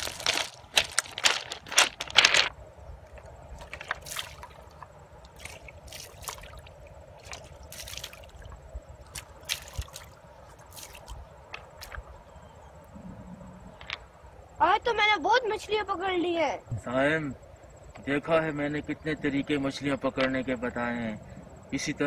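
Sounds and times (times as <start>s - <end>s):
footsteps crunching on stones: 0.0s - 2.6s, 3.6s - 6.6s, 7.2s - 8.4s, 9.1s - 12.1s.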